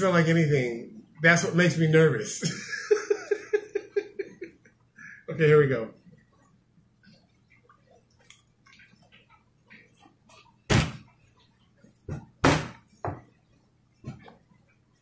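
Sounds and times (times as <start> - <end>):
loud thumps: 10.7 - 11.1, 12.1 - 13.2.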